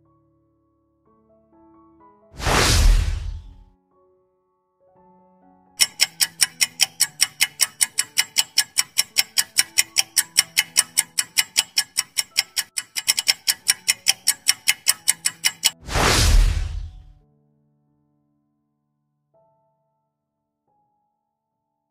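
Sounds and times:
loud whoosh: 0:02.4 - 0:03.6, 0:15.8 - 0:17.1
rapid clock ticks: 0:05.8 - 0:17.1.

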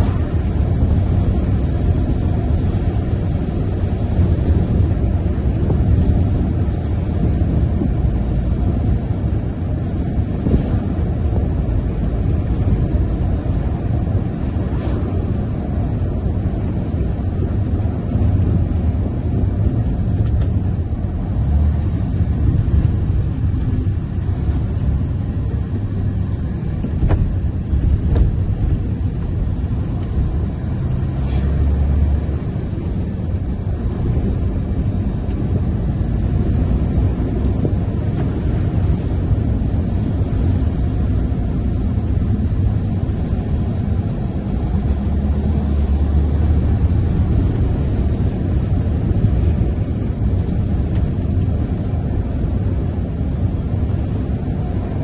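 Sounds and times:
truck engine and tyres droning: 0:00.0 - 0:55.0.

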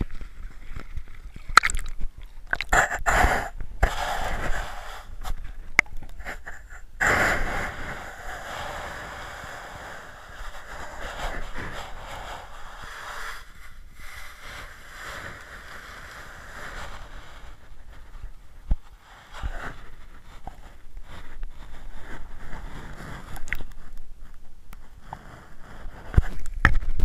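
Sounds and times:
muffled underwater water hiss: 0:02.6 - 0:26.5.

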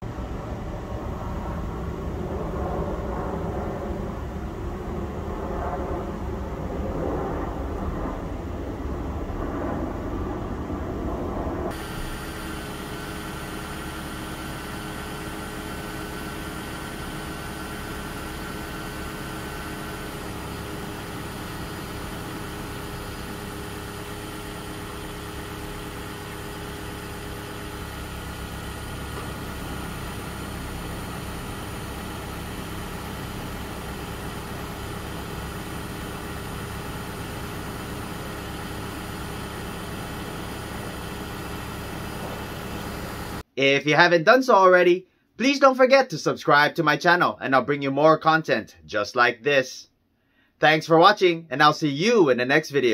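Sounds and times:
car engine idling: 0:11.7 - 0:43.4.

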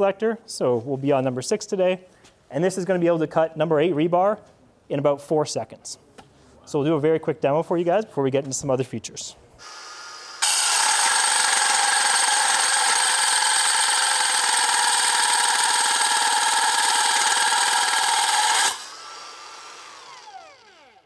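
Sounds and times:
rebar cutter whirring and grinding: 0:09.6 - 0:21.0
motor spinning down: 0:09.8 - 0:21.0.

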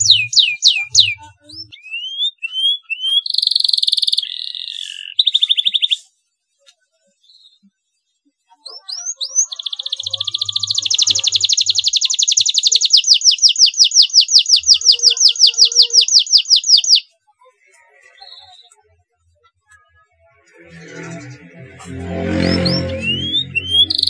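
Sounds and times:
canary singing: 0:00.0 - 0:06.0, 0:08.8 - 0:17.1, 0:20.5 - 0:24.0.

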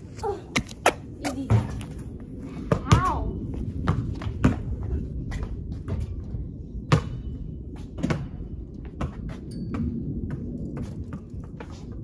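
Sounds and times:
low rumble: 0:00.0 - 0:12.0
basketball thuds on hoop and concrete: 0:03.8 - 0:04.7, 0:06.9 - 0:11.8.

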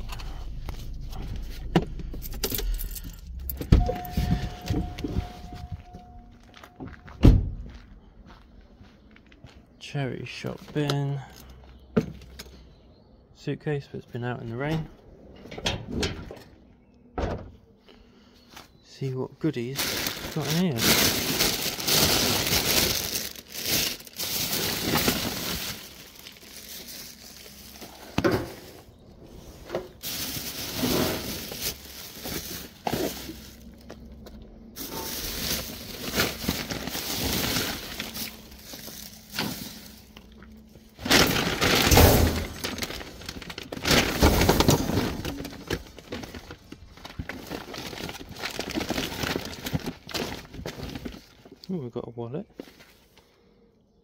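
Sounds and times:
plastic bags rustling: 0:00.0 - 0:06.8, 0:19.3 - 0:51.6.

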